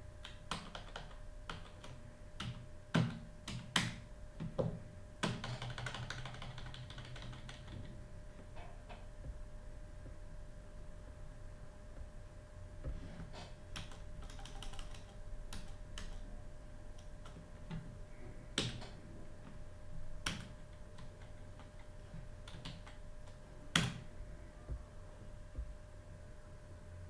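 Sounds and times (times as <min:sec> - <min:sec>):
keyboard keys clicking: 0:00.2 - 0:04.0, 0:05.2 - 0:07.9, 0:13.7 - 0:16.2.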